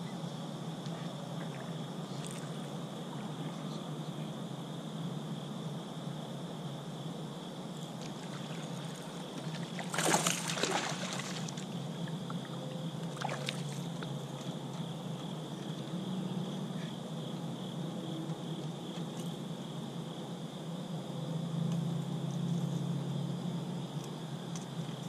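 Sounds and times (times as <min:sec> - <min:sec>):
fish splashing at surface: 0:08.1 - 0:11.7.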